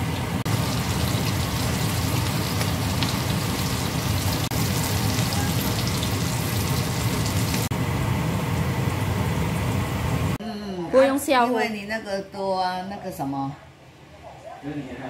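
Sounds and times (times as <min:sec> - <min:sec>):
chicken frying in hot oil: 0:00.0 - 0:07.7.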